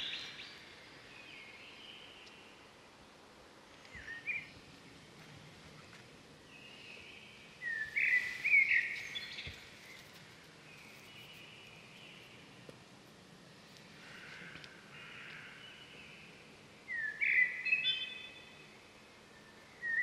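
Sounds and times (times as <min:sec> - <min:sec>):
outdoor background hiss: 0:00.0 - 0:20.0
bird chirping whistles: 0:07.6 - 0:09.4, 0:16.9 - 0:18.2, 0:19.8 - 0:20.0.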